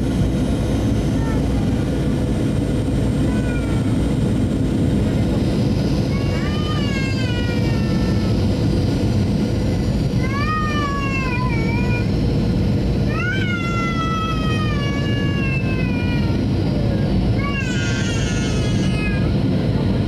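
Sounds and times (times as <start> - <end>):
airliner cabin engine noise: 0.0 - 20.0
high wailing cries: 13.1 - 16.5, 17.4 - 19.4.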